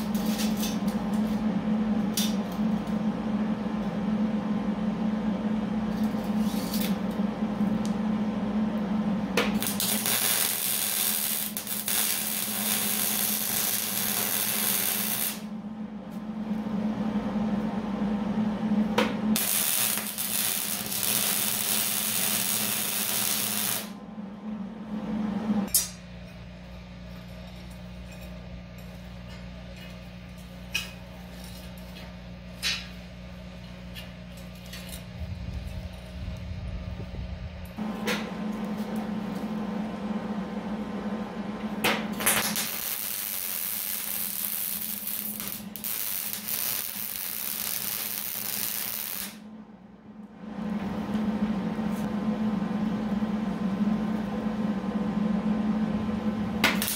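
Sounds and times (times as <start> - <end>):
welding machine hum: 0.0 - 56.9
welding arc crackling: 9.5 - 15.5, 19.4 - 24.0, 42.2 - 49.4.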